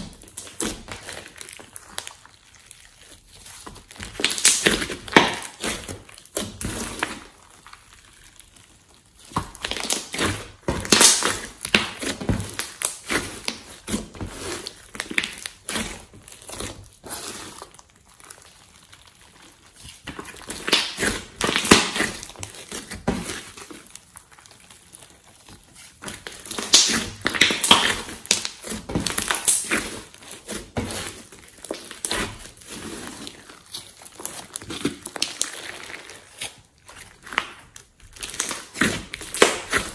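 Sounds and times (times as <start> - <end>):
slime crackling and squishing: 0.0 - 39.9.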